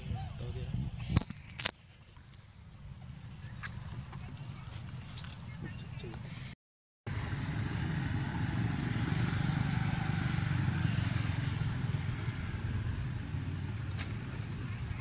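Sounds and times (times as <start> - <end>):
motorbikes passing on a road: 7.1 - 15.0.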